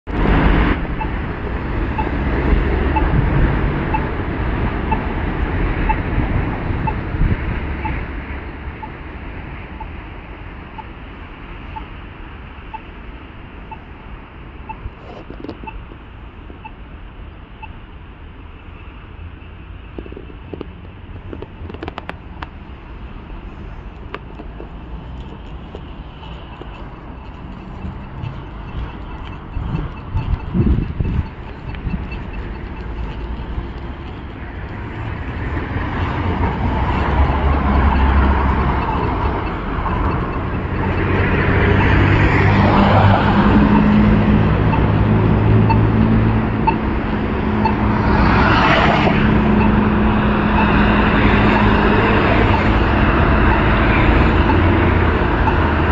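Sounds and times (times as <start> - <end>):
low street rumble: 0.0 - 55.9
road traffic hum: 0.0 - 55.9
crossing signal beeping: 0.1 - 16.9, 17.5 - 17.9, 18.7 - 55.9
sharp clicks: 20.0 - 22.6.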